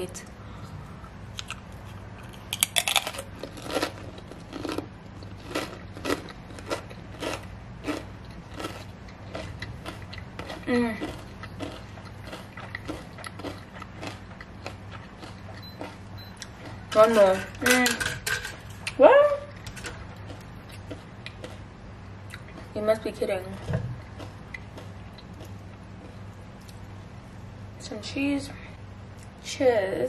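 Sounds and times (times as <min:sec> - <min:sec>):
crunching and chewing cracker: 0:01.3 - 0:16.8, 0:19.6 - 0:21.7, 0:24.0 - 0:26.8.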